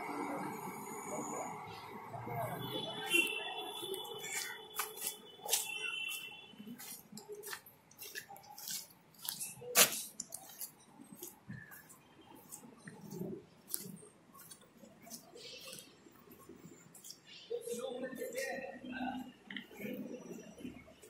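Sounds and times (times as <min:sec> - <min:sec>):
footsteps on gritty concrete: 0:03.8 - 0:17.3.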